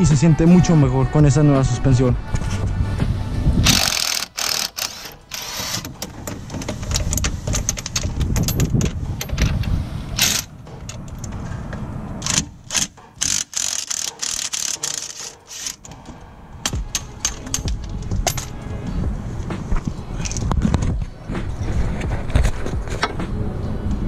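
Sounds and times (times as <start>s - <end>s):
impact wrench hammering: 3.7s - 6.4s, 10.2s - 11.2s, 12.2s - 18.6s.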